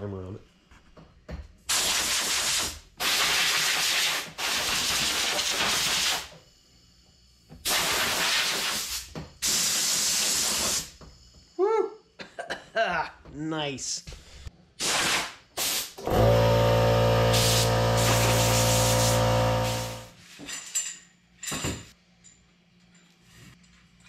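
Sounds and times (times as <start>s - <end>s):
compressed air blow gun hissing: 17.3s - 20.1s.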